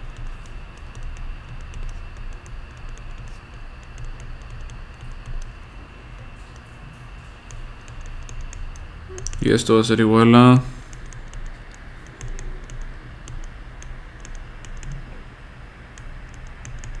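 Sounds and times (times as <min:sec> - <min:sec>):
stylus tapping on pen tablet: 0:00.0 - 0:05.6, 0:07.4 - 0:09.4
faint high whine: 0:00.0 - 0:17.0.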